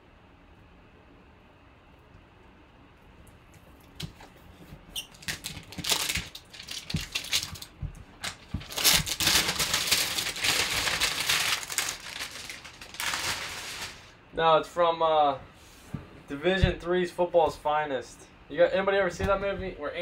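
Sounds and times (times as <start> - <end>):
plastic shrink wrap crinkling: 4.9 - 14.2.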